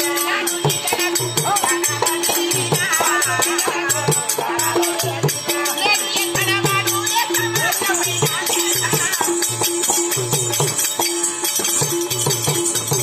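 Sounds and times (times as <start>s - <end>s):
person singing: 0.0s - 9.4s
ankle bells jingling: 0.0s - 13.0s
harmonium: 0.0s - 13.0s.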